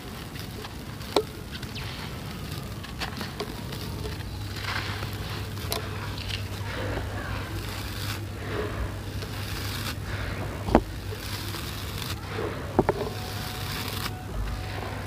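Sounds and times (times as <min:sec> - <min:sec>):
sand and cement mix pouring: 0:00.0 - 0:15.0
steady low hum: 0:00.0 - 0:15.0.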